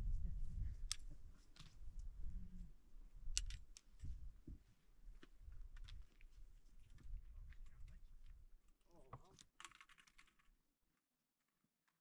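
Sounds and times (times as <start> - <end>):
wind on microphone: 0.0 - 2.7.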